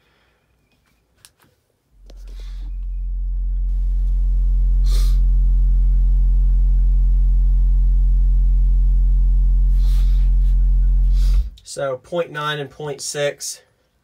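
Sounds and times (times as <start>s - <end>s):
subwoofer low test tone: 2.0s - 11.7s.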